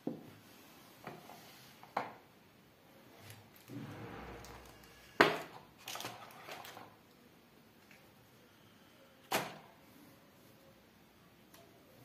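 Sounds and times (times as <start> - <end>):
paper and packaging rustling: 5.8 - 7.0.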